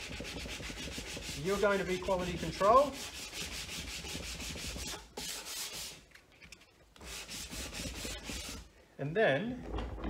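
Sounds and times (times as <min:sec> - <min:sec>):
sandpaper rubbing on wood: 0:00.0 - 0:06.0, 0:07.0 - 0:08.7.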